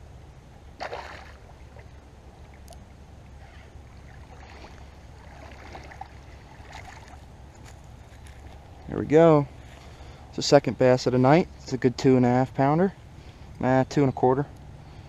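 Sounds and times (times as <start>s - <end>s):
fish splashing in water: 0.8s - 2.8s, 3.9s - 7.3s.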